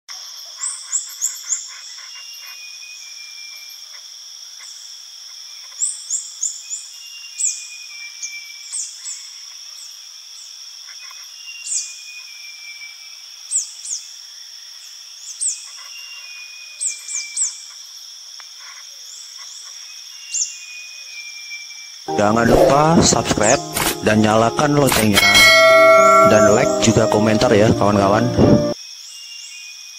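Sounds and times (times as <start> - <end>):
steady high-pitched drone: 22.1 - 28.8.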